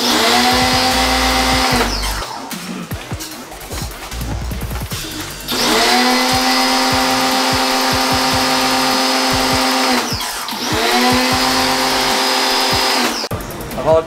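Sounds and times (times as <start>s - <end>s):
pressure washer pump whine: 0.0s - 2.3s, 4.9s - 13.3s.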